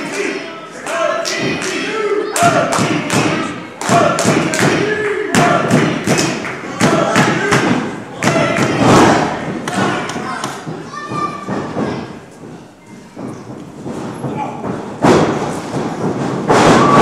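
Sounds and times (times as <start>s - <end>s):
thuds in wrestling ring: 5.4s - 12.2s, 13.2s - 17.0s.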